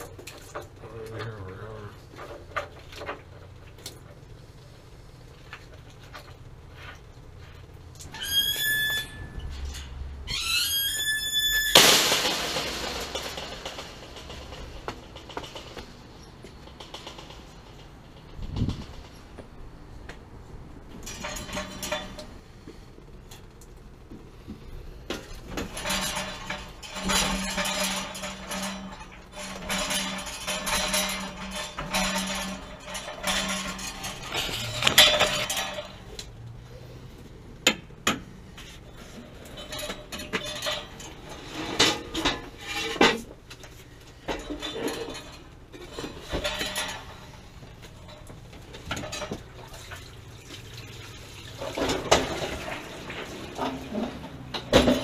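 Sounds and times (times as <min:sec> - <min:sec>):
metal clattering and clanking: 0:11.6 - 0:19.8, 0:20.8 - 0:23.5, 0:24.6 - 0:36.5, 0:37.6 - 0:50.8, 0:51.4 - 0:55.0.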